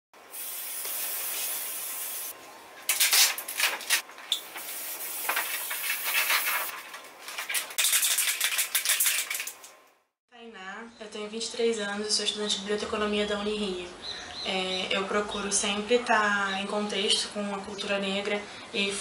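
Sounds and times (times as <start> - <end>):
spray can ball rattling: 0.3 - 2.3, 4.3 - 6.8, 7.4 - 9.8
spray can hissing: 0.3 - 2.4, 4.4 - 6.7.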